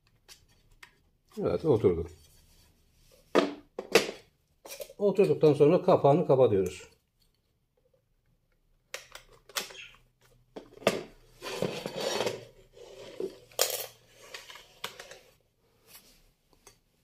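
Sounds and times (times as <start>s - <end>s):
scale scraping on tiled floor: 11.4s - 13.5s.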